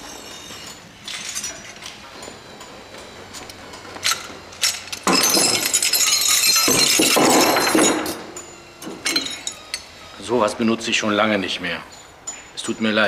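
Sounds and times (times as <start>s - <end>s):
metal pieces clinking: 0.2s - 2.1s, 3.4s - 9.9s.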